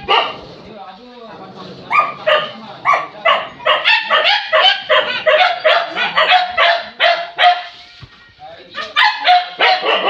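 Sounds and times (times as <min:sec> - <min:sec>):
dogs barking: 0:00.0 - 0:00.6, 0:01.8 - 0:07.7, 0:08.8 - 0:10.0.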